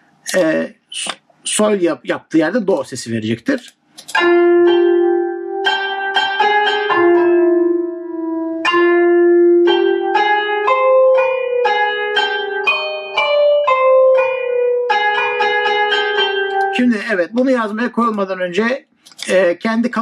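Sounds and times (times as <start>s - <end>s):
plucked-sounding melody notes: 4.1s - 18.2s.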